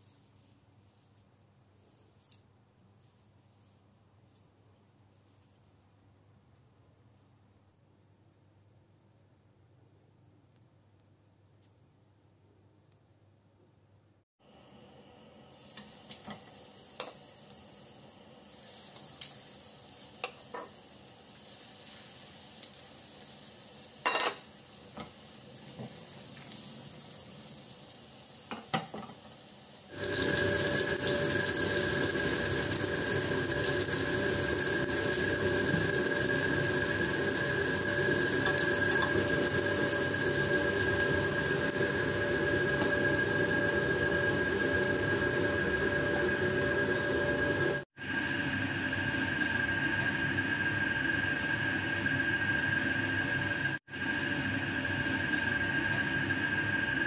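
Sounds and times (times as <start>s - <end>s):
meat sizzling in hot oil: 15.5s - 47.8s.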